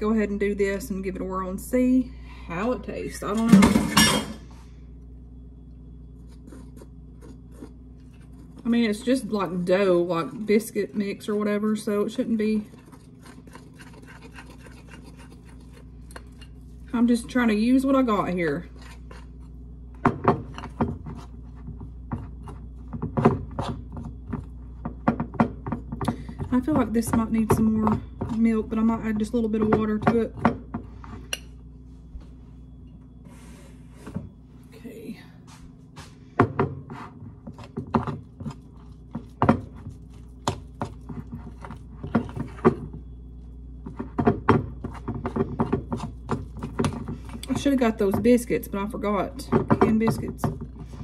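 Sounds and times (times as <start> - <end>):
spoon scraping glass bowl: 12.4 - 19.6.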